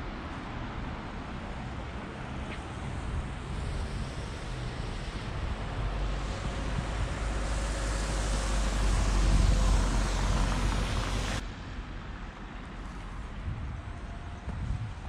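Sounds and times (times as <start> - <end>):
vehicle passing by: 3.3 - 11.4.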